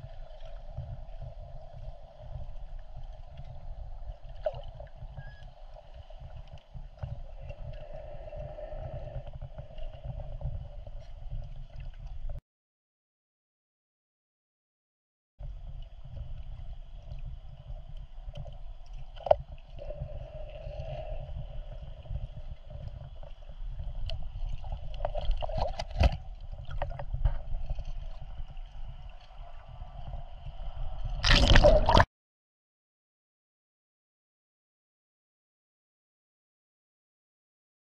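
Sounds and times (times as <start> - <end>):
muffled underwater gurgling rumble: 0.0 - 12.4, 15.4 - 32.1
rushing splashing water: 31.2 - 32.1.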